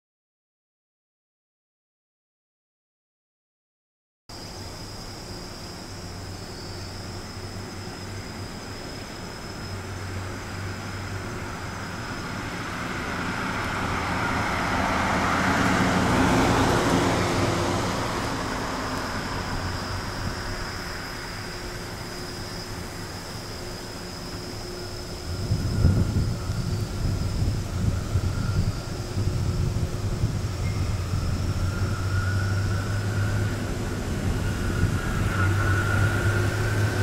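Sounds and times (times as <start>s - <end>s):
thin steady high tone: 4.3s - 13.3s, 18.0s - 37.0s
van driving past: 9.8s - 37.0s.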